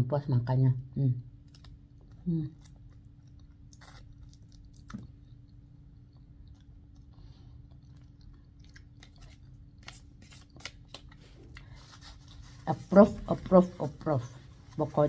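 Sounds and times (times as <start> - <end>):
faint steady hum: 0.0 - 15.0
quiet chewing with crunches: 1.4 - 10.0.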